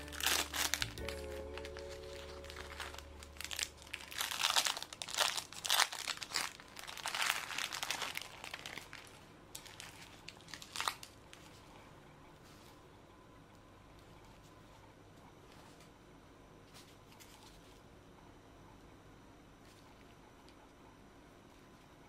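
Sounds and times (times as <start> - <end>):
soft background music: 0.0 - 9.0
plastic wrapper crinkling: 0.0 - 11.6.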